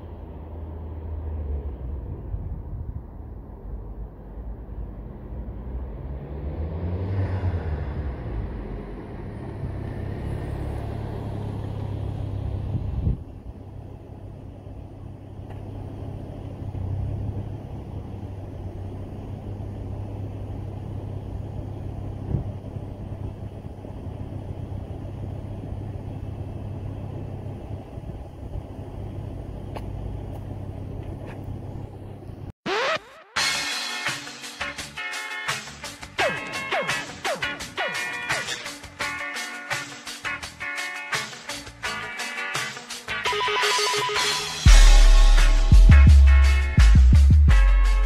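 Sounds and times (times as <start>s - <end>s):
car engine running: 8.1s - 32.5s.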